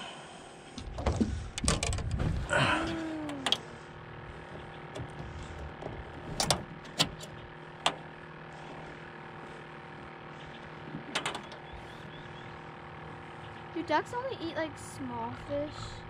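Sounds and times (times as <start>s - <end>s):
steady low hum: 0.0s - 16.0s
knocks and scraping: 0.8s - 12.4s
sharp metal clicks: 4.4s - 8.1s, 11.1s - 11.8s.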